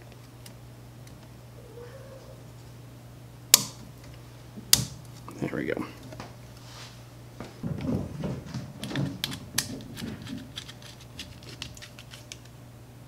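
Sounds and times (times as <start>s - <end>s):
plastic parts clicking and knocking: 8.8s - 12.5s.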